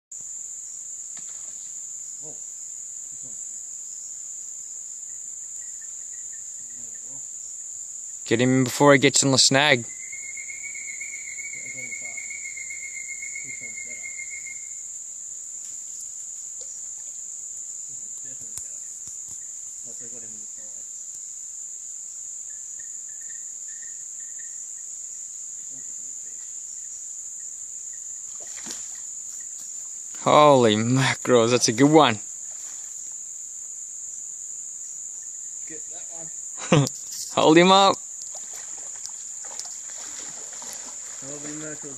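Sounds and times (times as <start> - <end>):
high-pitched insect drone: 0.2 - 41.9
water splash: 28.3 - 29.1, 38.2 - 41.9.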